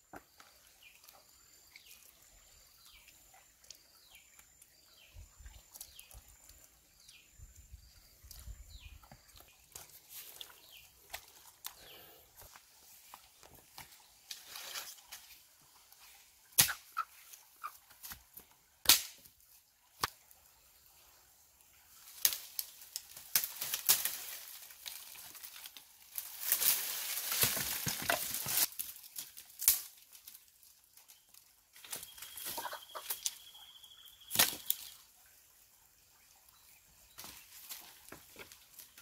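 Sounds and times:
branches crackling and rustling: 8.3s - 19.3s, 21.9s - 35.0s, 37.2s - 39.0s
dry sticks snapping: 16.6s - 16.8s, 18.8s - 19.2s, 22.2s - 25.6s, 26.2s - 30.4s, 34.3s - 34.9s.

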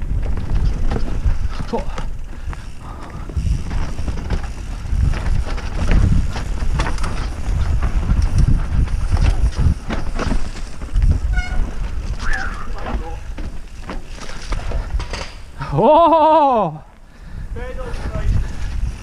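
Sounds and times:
wind on microphone: 0.0s - 13.4s, 17.2s - 19.0s
bike rattling and knocking: 0.0s - 16.0s
tyres rolling on dirt: 0.0s - 16.2s.

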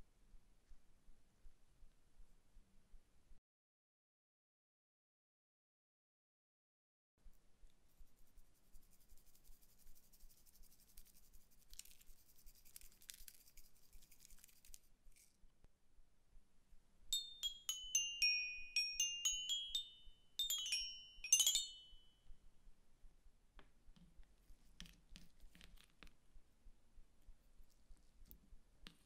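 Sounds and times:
toy xylophone notes: 17.1s - 22.2s.

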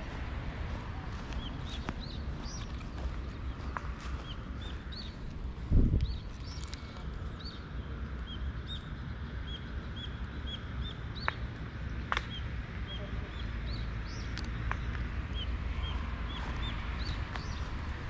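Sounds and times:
low outdoor rumble: 0.0s - 18.0s
bird chirping: 1.1s - 5.3s.

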